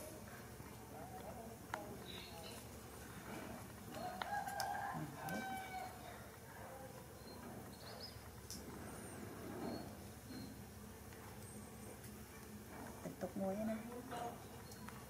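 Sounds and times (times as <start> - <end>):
animal cries: 4.9 - 6.1
faint high chirps: 9.6 - 10.7.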